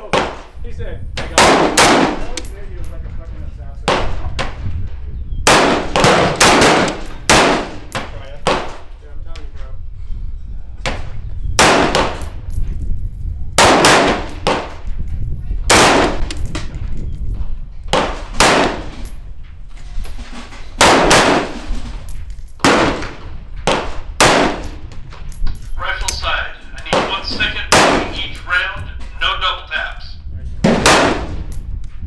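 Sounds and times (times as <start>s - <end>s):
gunshots with echo: 1.3s - 2.4s, 5.4s - 8.8s, 11.6s - 12.2s, 13.6s - 14.8s, 17.9s - 19.0s, 20.8s - 21.7s, 22.6s - 24.8s, 26.9s - 28.9s, 30.6s - 31.5s.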